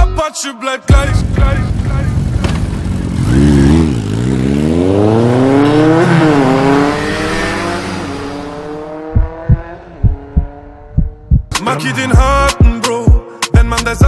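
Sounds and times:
scooter engine revving: 0:01.2 - 0:11.3
deep bass thumps: 0:09.0 - 0:11.6.

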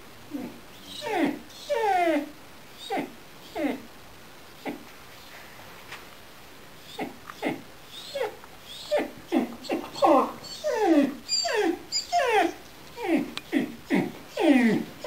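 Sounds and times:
puppy whimpering and yelping: 0:00.4 - 0:03.8, 0:06.8 - 0:15.0.

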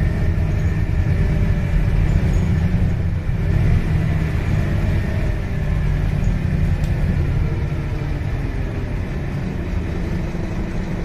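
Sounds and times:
bus engine droning: 0:00.0 - 0:11.0
road and tyre noise: 0:00.0 - 0:11.0.

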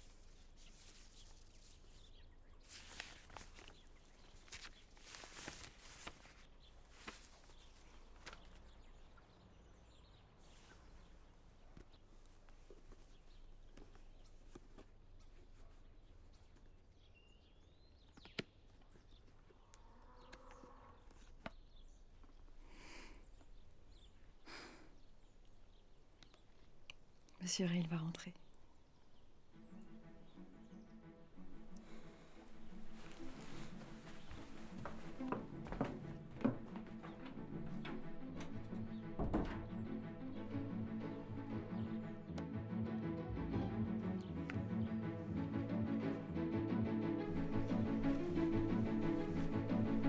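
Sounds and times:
paper rustling and crinkling: 0:00.0 - 0:08.8, 0:32.6 - 0:37.1.

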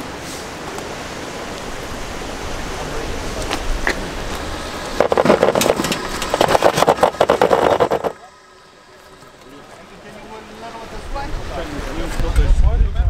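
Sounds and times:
vehicle running: 0:02.9 - 0:12.6
loud rapid crackling: 0:04.9 - 0:08.2
heavy wind noise: 0:10.9 - 0:13.0.

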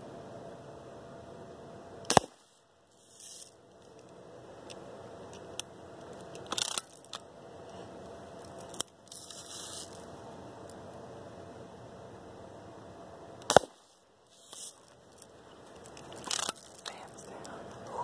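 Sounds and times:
bb gun shot: 0:02.1 - 0:02.4, 0:13.5 - 0:13.8
short bursts of hiss: 0:09.1 - 0:10.0, 0:13.6 - 0:14.9.

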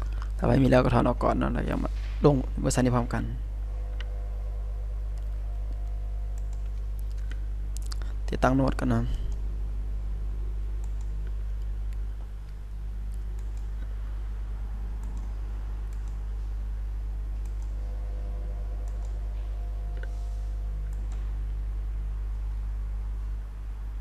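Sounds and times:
low electrical hum: 0:00.0 - 0:24.0
faint clicks: 0:10.8 - 0:13.9.

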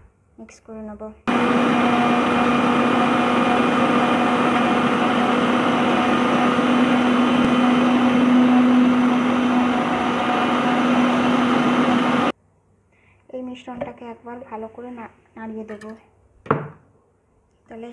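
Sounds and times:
mixer grinder motor whirring: 0:01.3 - 0:12.3.

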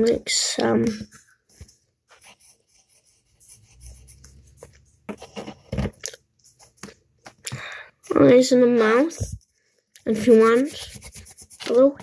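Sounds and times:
pencil scratching on paper: 0:02.1 - 0:05.6, 0:10.1 - 0:12.0.

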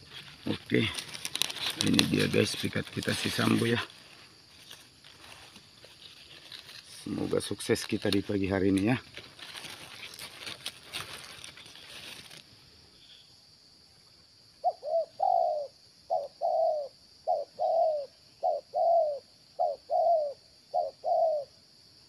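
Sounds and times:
dove cooing: 0:00.0 - 0:03.8, 0:14.6 - 0:21.6
faint rustling: 0:00.0 - 0:12.5.

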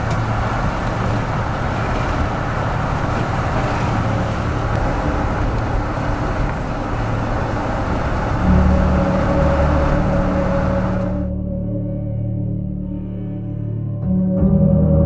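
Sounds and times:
vehicle road and engine noise: 0:00.0 - 0:11.6
low held music tones: 0:00.0 - 0:15.0.

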